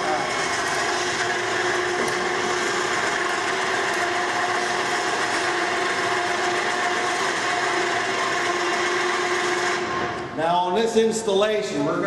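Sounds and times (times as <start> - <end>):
electric winch motor whine: 0.0 - 10.4.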